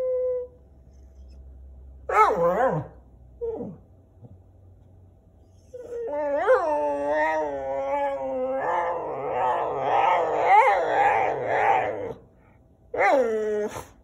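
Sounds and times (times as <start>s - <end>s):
dog howling: 5.6s - 12.2s, 12.9s - 13.9s.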